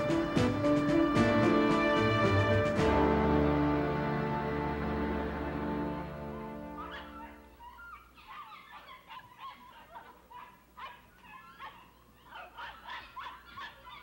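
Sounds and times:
dogs barking and yelping: 6.7 - 14.0.

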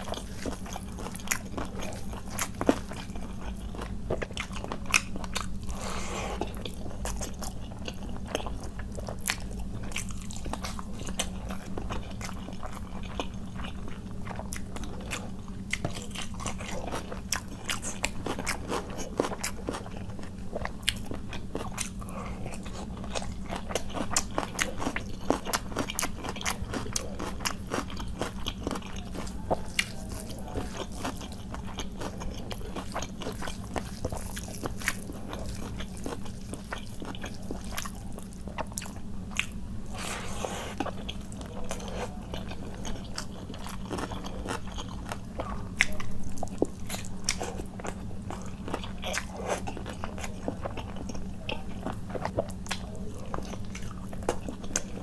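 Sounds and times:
person chewing and eating: 0.0 - 55.0.

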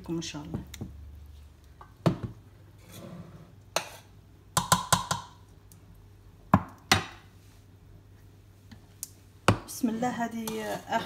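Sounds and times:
metal spoon knocking on cookware: 4.6 - 5.3.

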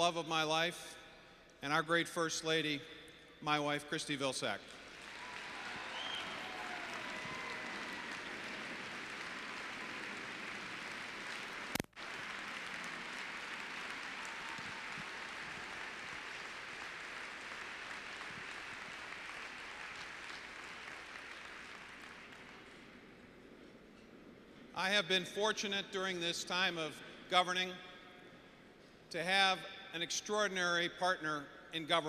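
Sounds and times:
audience applauding: 4.8 - 23.0.

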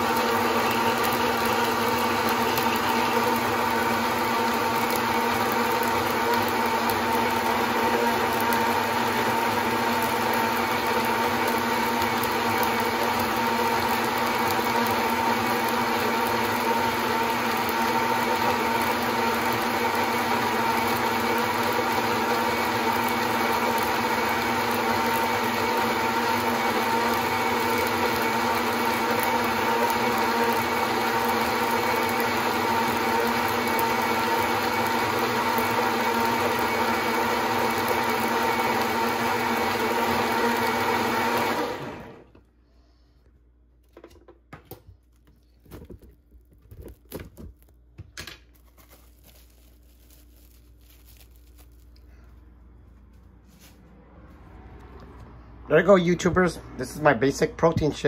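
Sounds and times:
blender running: 0.0 - 42.4.

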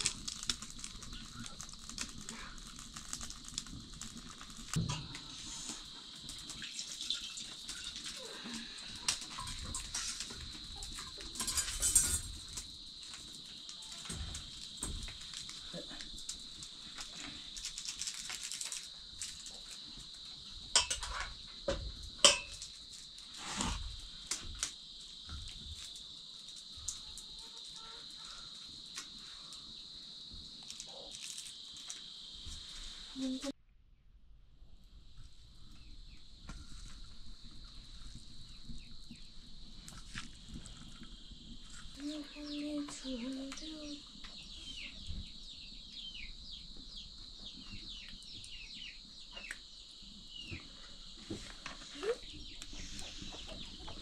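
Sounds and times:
insects chirring: 0.0 - 33.6, 34.6 - 54.0
pots and utensils clinking: 10.9 - 12.6, 20.7 - 21.4, 22.2 - 22.7.

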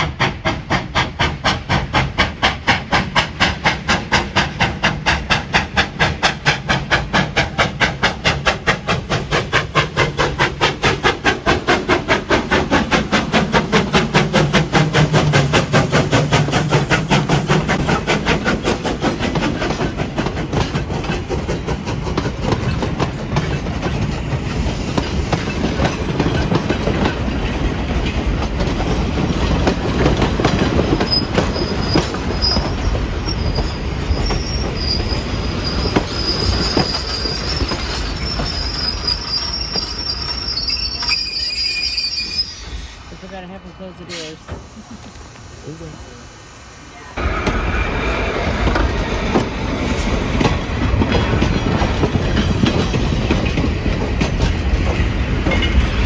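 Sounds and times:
steam locomotive exhaust chuffs: 0.0 - 56.0
train cars rumbling and clicking: 0.0 - 56.0
wheel squeal: 30.9 - 43.0.

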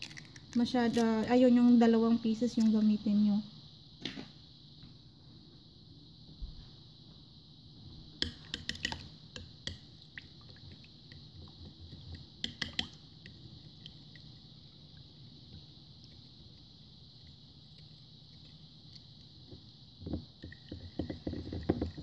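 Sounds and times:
faint steady hiss: 0.0 - 22.0
spoon beating eggs in bowl: 8.2 - 9.9, 10.5 - 14.2.

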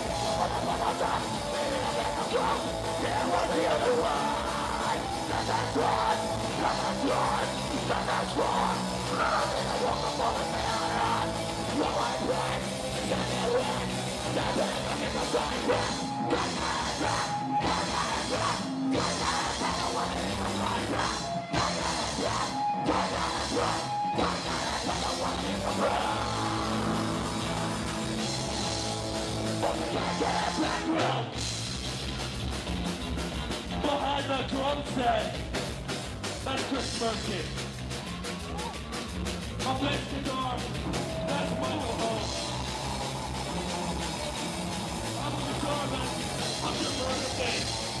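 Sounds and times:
distorted guitars: 0.0 - 48.0
drum kit: 0.0 - 48.0
singer yelling into microphone: 0.1 - 27.2, 39.6 - 42.6, 45.0 - 48.0.

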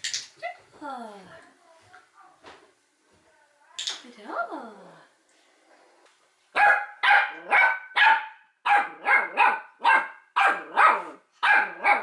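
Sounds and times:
puppy barking high-pitched: 6.6 - 12.0.

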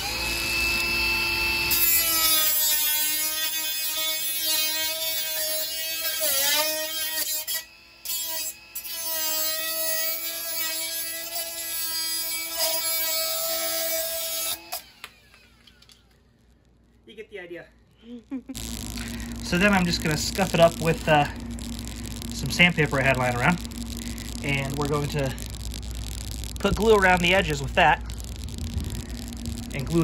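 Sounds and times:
cut-off tool whining: 0.0 - 16.0.

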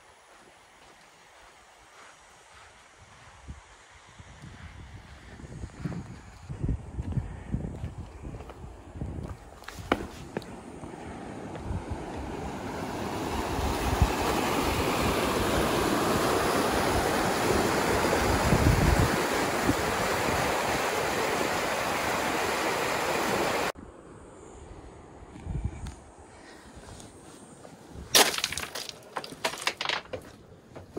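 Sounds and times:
wind buffeting microphone: 2.5 - 23.7
river water rushing: 12.0 - 23.8.

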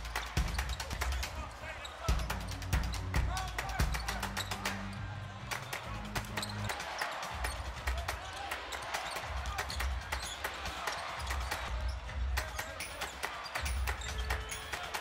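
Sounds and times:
background music with bass pulse: 2.1 - 6.7.

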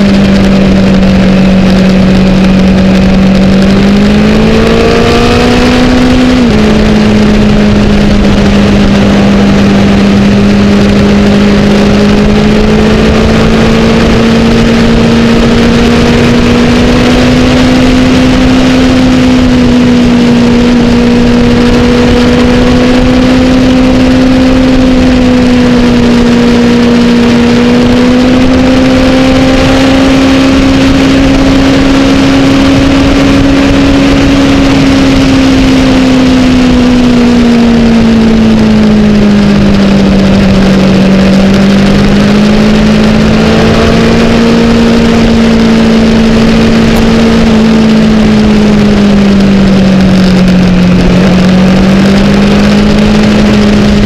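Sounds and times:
motorcycle engine revving: 0.0 - 54.0
wind noise: 0.0 - 54.0.

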